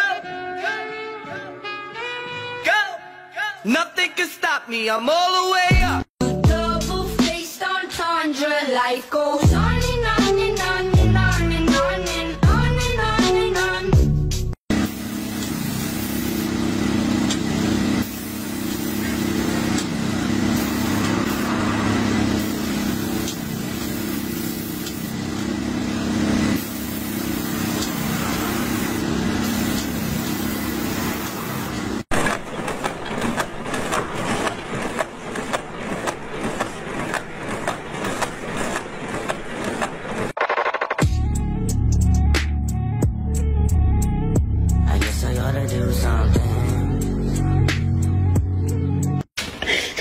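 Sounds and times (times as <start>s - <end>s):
paint sprayer pump droning and hissing: 14.7s - 40.3s
box-making machine clattering: 32.1s - 40.4s.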